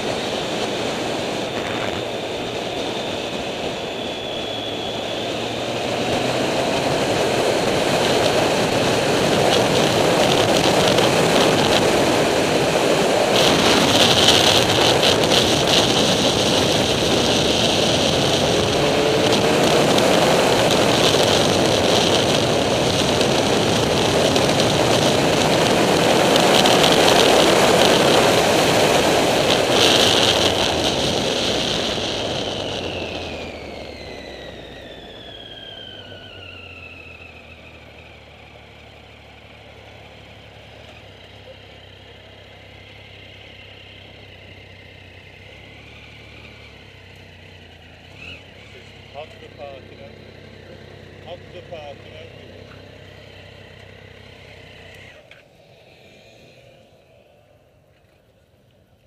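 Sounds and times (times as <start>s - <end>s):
wind rush: 0.0s - 35.4s
motorcycle engine running: 0.0s - 59.0s.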